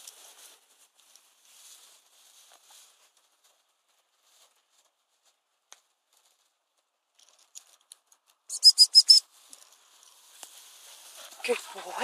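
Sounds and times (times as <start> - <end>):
faint ticks and rustles: 0.0 - 8.5, 9.3 - 12.0
shrill dog whistle pips: 8.5 - 9.3.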